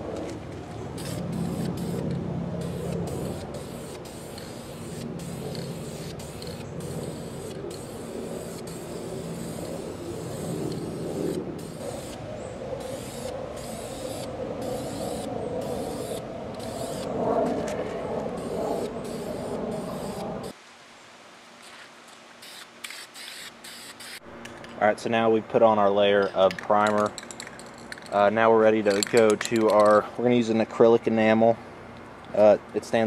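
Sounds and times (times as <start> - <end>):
steady low rumble: 0.0 - 20.6
aerosol can spraying: 1.0 - 12.2.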